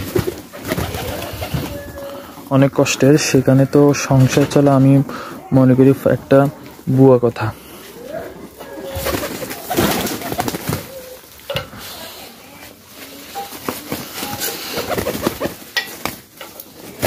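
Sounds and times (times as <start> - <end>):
wings flapping: 0.0 - 2.1, 8.8 - 11.4, 13.1 - 17.0
pigeons cooing: 0.0 - 3.6, 7.6 - 12.2, 13.7 - 15.6.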